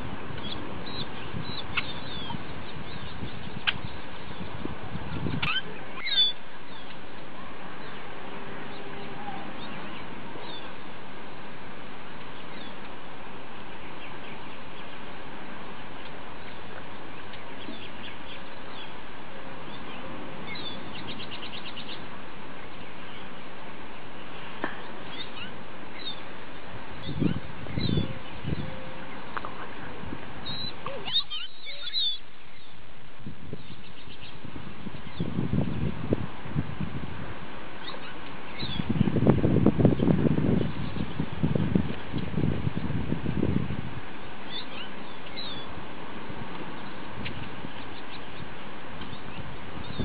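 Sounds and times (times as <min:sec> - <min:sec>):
small birds chirping: 0:00.0 - 0:11.0, 0:12.1 - 0:13.0, 0:13.6 - 0:35.9, 0:37.8 - 0:43.0, 0:44.2 - 0:45.8, 0:46.5 - 0:50.0
steady outdoor hiss: 0:00.0 - 0:50.0
bird trill: 0:00.4 - 0:04.5, 0:05.2 - 0:06.9, 0:19.7 - 0:22.1, 0:25.0 - 0:26.2, 0:27.0 - 0:29.3, 0:30.4 - 0:32.8, 0:37.8 - 0:39.0, 0:44.5 - 0:45.7.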